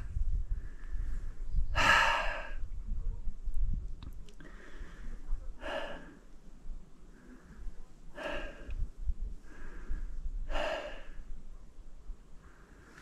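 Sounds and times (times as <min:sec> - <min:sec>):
person breathing hard: 0:00.5 - 0:02.6, 0:04.4 - 0:06.3, 0:07.1 - 0:11.3.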